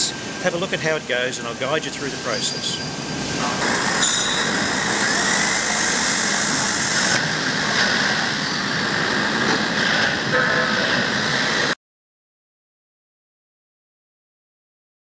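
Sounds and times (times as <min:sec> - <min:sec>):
faint high whine: 0:00.0 - 0:11.8
mechanical drone: 0:03.0 - 0:11.8.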